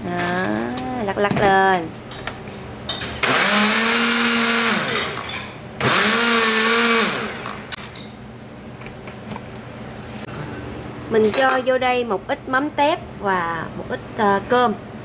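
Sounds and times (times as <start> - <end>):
blender motor whine: 3.2 - 5.2, 5.8 - 7.8.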